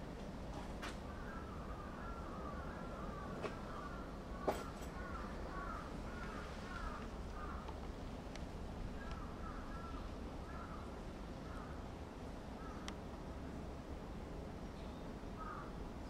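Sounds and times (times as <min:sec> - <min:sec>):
bird calling: 0:01.1 - 0:07.8.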